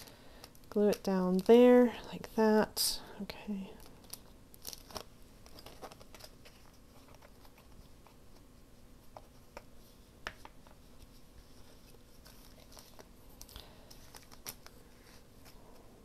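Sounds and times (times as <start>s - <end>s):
low room hum: 0.0s - 16.0s
light paper taps and rustles: 9.1s - 11.2s.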